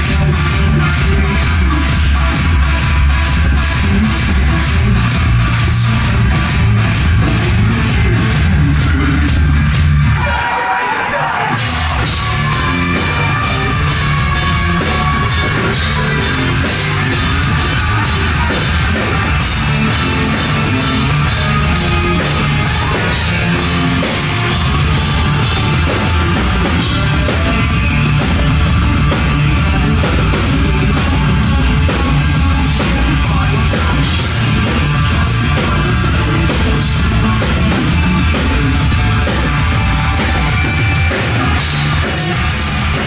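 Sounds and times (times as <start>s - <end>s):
bass guitar: 0.0s - 43.0s
distorted electric guitars: 0.0s - 43.0s
pounding drums: 0.0s - 43.0s.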